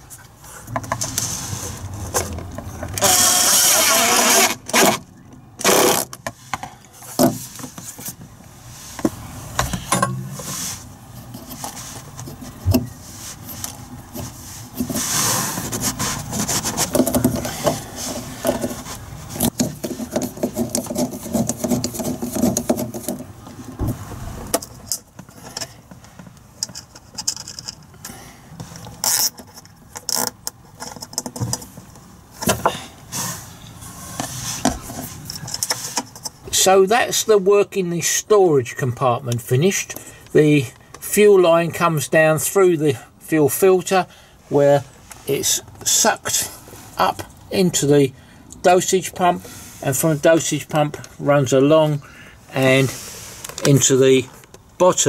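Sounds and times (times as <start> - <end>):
cordless drill-driver: 3.0 - 4.9
screwdriver tightening screws: 3.0 - 5.0.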